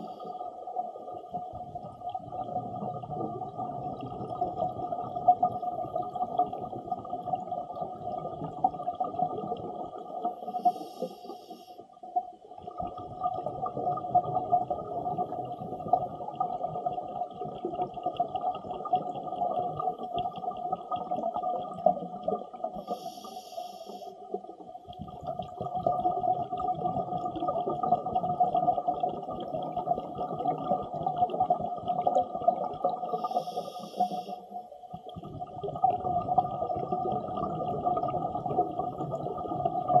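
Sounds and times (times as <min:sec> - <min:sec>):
exhaled bubbles rumbling underwater: 0:00.0 - 0:40.0
regulator inhale hiss: 0:10.4 - 0:11.9, 0:22.8 - 0:24.2, 0:33.1 - 0:34.6.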